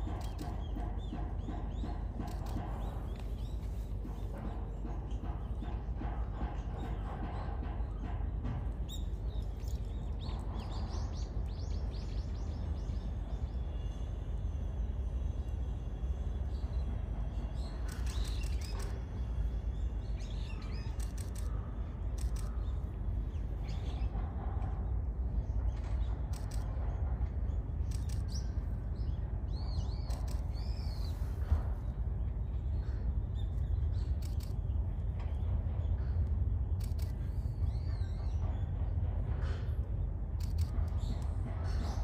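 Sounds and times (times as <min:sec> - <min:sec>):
steady low rumble: 0:00.0 - 0:42.0
small birds chirping: 0:17.5 - 0:19.0, 0:19.6 - 0:24.2, 0:27.5 - 0:31.4, 0:32.3 - 0:36.0.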